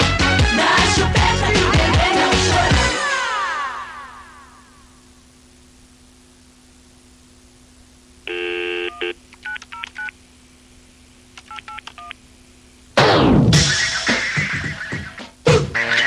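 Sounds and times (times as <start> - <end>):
loud music: 0.0 - 3.1, 13.0 - 16.0
low steady hum: 2.0 - 13.5
buzzy phone tone: 8.3 - 9.2
keypad beeps: 8.9 - 10.1, 11.4 - 12.2.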